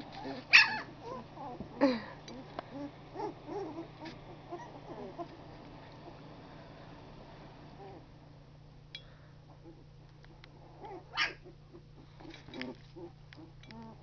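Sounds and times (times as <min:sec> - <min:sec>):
puppies squeaking and grunting: 0:00.0 - 0:06.2, 0:09.6 - 0:14.0
low steady hum: 0:00.0 - 0:14.0
puppy crying: 0:00.2 - 0:05.4, 0:10.6 - 0:14.0.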